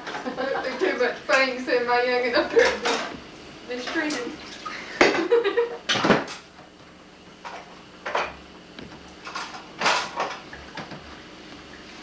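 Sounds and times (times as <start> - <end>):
dishes clattering and scraping: 2.4 - 3.2, 7.4 - 8.4, 9.2 - 10.9.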